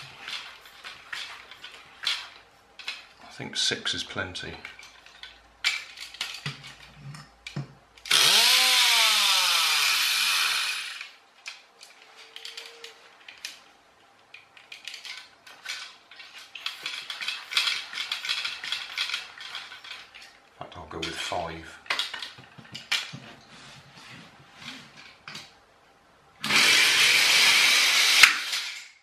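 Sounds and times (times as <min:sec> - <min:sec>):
toy air engine hissing and whining: 0:08.1 - 0:11.1
hand pump clicking and rattling: 0:14.6 - 0:20.4.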